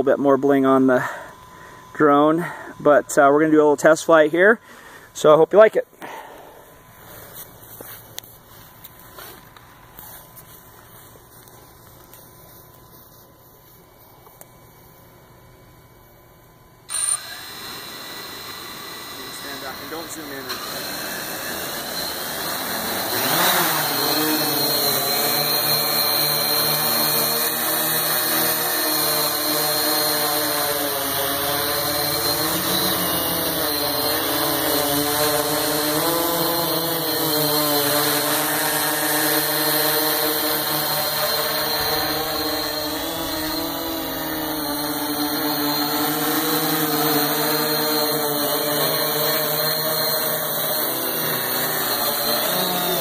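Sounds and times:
drone motors humming: 13.6s - 53.0s.

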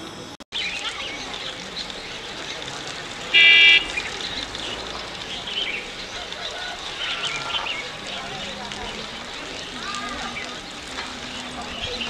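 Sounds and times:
small birds chirping: 0.5s - 12.0s
loud steady-pitched toot: 3.3s - 4.0s.

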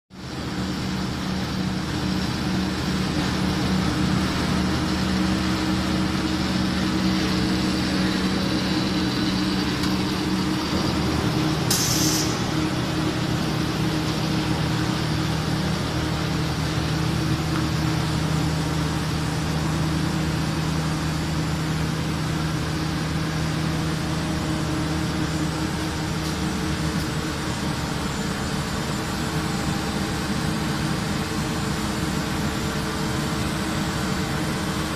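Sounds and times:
extrusion machine droning: 0.2s - 34.9s
short hiss: 11.7s - 12.4s.

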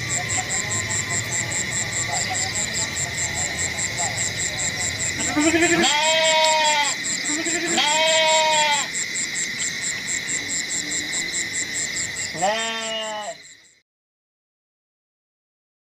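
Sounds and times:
sheep bleating: 5.2s - 9.0s, 12.3s - 13.4s.

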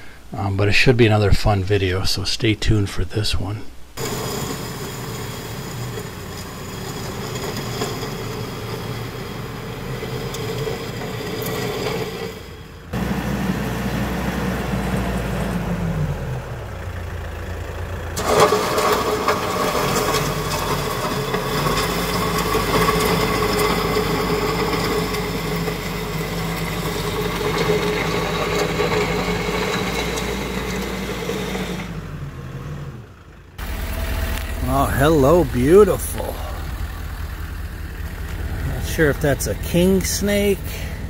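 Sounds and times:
tractor diesel engine: 3.9s - 41.0s
gravel scraping under bucket: 4.0s - 12.6s, 18.2s - 31.9s, 33.6s - 41.0s.

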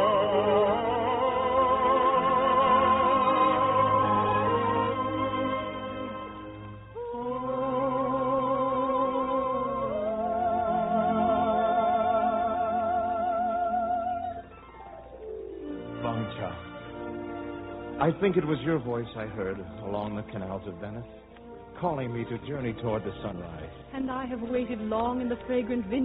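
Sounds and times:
operatic singing with vibrato: 0.0s - 14.7s
orchestral accompaniment: 0.0s - 26.0s.

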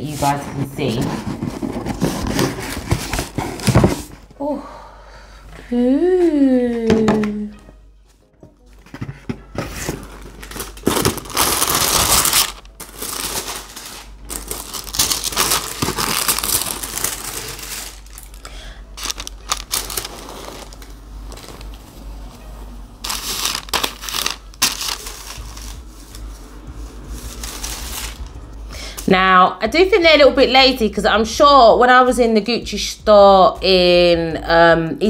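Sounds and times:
paper and plastic rustling: 0.0s - 4.3s, 8.4s - 28.5s.

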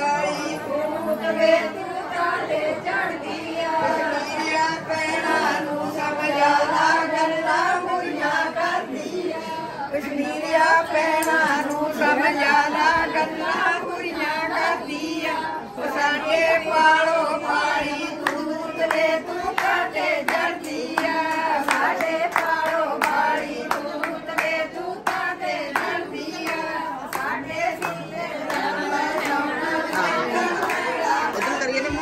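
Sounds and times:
women singing together: 0.0s - 32.0s
hand claps: 11.2s - 11.9s, 18.2s - 31.9s.

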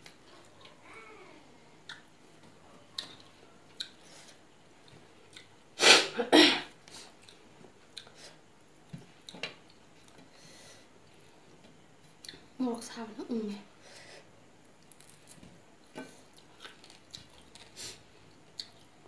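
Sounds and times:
person sneezing: 5.8s - 6.7s.

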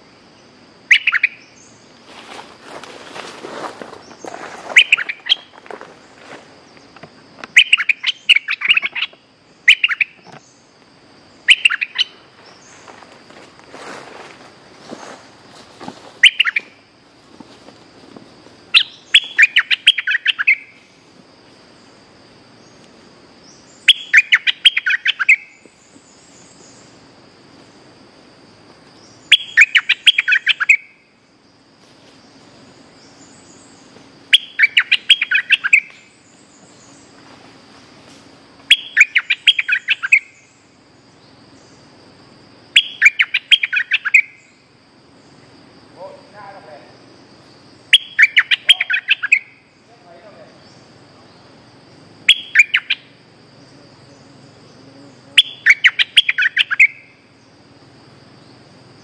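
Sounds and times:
faint high hum: 0.0s - 59.0s
bulbul chattering song: 0.8s - 1.8s, 4.8s - 5.5s, 7.5s - 10.6s, 11.3s - 12.2s, 16.2s - 16.8s, 18.7s - 20.8s, 23.4s - 25.8s, 29.0s - 31.0s, 33.0s - 36.5s, 38.6s - 40.8s, 42.7s - 44.6s, 47.8s - 51.6s, 52.2s - 57.5s.

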